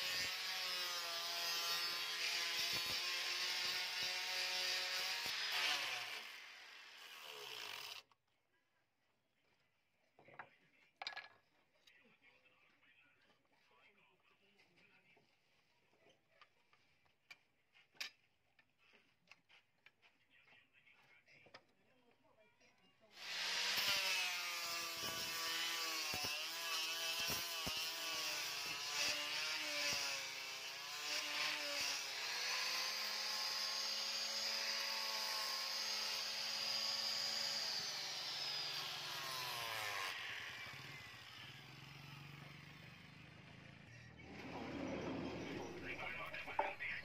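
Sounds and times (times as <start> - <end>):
angle grinder grinding steel: 0.0 - 8.0, 23.2 - 43.0.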